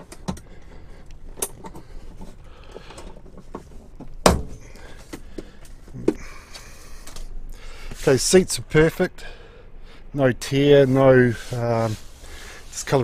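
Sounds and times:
loud thunk: 4.2s - 4.6s.

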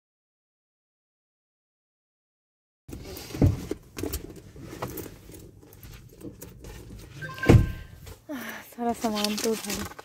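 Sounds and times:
short beep: 7.2s - 8.0s
bag rustling and clicks: 8.8s - 10.0s.

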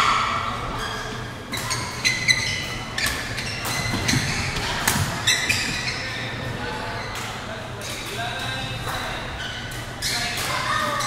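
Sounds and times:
sports hall hum: 0.0s - 11.0s
shoes squeaking on court floor: 0.6s - 11.0s.

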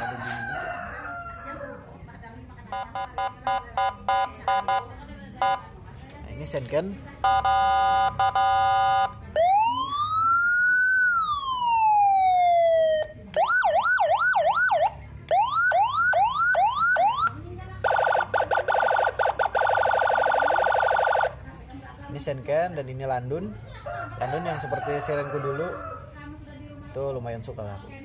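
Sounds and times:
electronic siren wailing and yelping: 7.2s - 21.4s.

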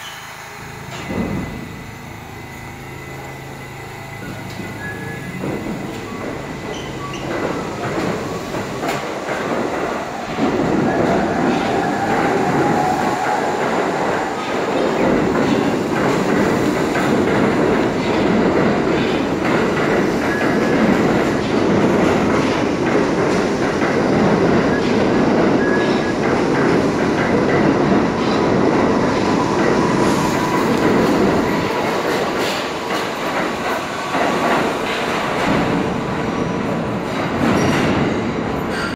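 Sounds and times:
subway train rumbling: 0.0s - 38.9s
faint wheel squeal: 2.4s - 7.3s.

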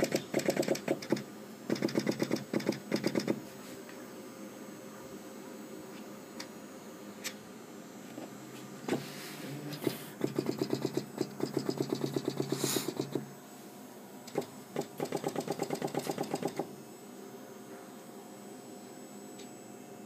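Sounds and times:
rapid mechanical pneumatic strokes: 0.0s - 3.7s, 8.9s - 13.3s, 14.3s - 16.7s.

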